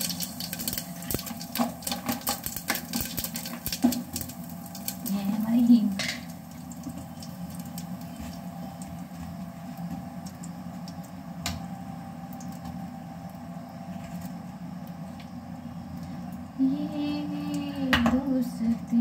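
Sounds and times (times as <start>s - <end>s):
spices sizzling in hot oil: 0.0s - 11.4s.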